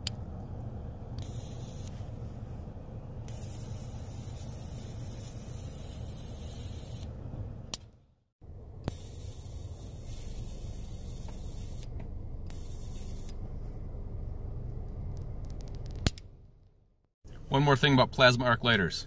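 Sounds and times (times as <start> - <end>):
electric arc hissing and buzzing: 3.3 - 7.0, 8.9 - 11.8.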